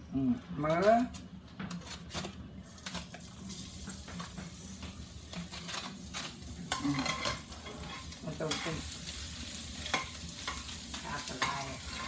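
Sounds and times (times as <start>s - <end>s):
food sizzling in hot oil: 2.7s - 12.0s
metal spatula scraping a pan: 5.3s - 12.0s.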